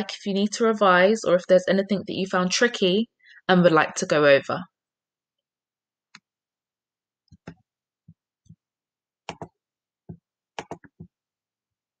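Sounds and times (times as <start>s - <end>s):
computer mouse clicks: 9.3s - 9.6s, 10.6s - 11.1s.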